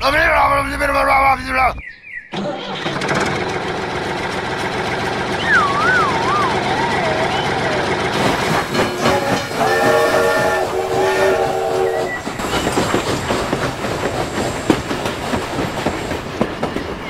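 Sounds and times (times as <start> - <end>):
train wheels clickety-clack: 6.8 - 17.0
train horn chord blasts: 8.9 - 12.2.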